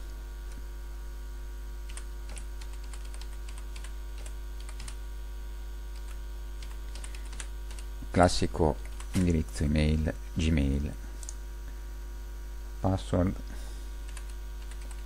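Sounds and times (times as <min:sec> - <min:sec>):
steady electrical hum: 0:00.0 - 0:15.0.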